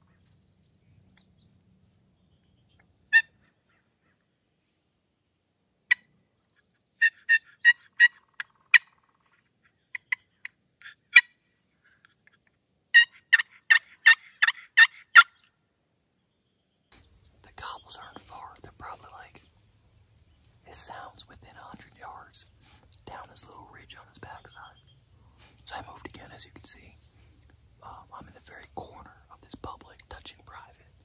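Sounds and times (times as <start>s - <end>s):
turkey yelps: 7.0s - 9.0s, 13.0s - 15.4s.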